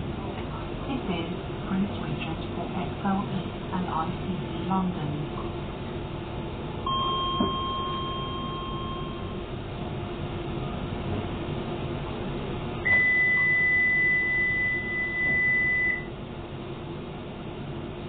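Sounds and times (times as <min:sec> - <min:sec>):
train car hum: 0:00.0 - 0:18.0
electronic warning beeps: 0:06.9 - 0:09.4, 0:12.8 - 0:16.1.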